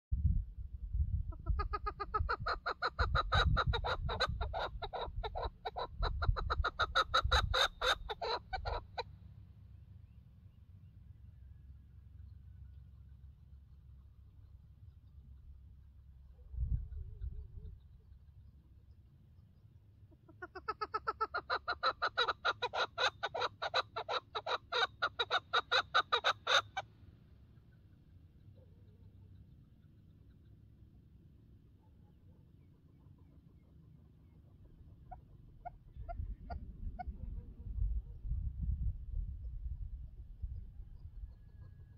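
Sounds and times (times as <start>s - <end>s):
partridge chuck calls: 1.3s - 9.1s, 20.1s - 31.0s, 31.6s - 37.9s.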